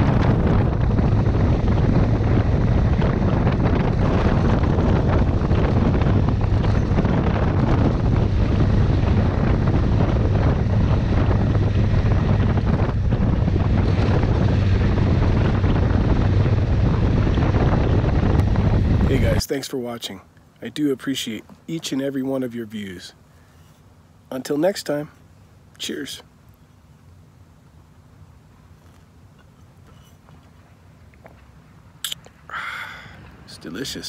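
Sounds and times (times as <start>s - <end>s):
motorcycle engine droning: 0.0s - 19.4s
wind buffeting microphone: 0.0s - 19.4s.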